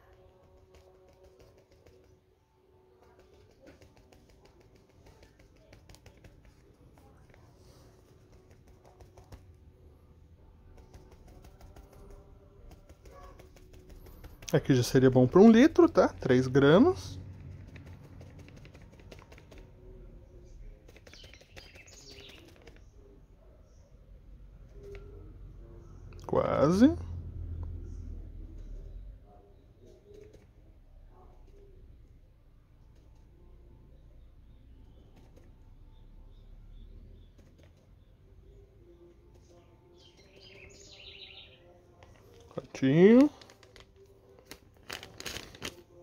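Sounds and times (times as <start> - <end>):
faint bird chirps: 20.3 - 24.0, 32.9 - 41.8
plastic bag crinkling: 43.1 - 46.0.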